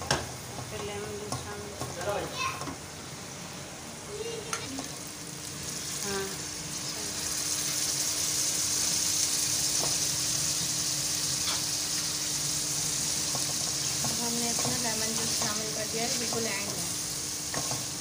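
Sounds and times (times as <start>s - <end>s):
meat sizzling in a pan: 4.4s - 18.0s.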